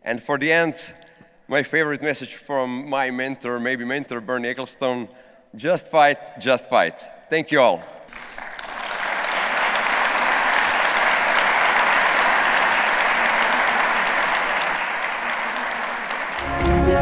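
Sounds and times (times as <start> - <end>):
audience applauding: 8.1 - 17.0
music track: 16.4 - 17.0.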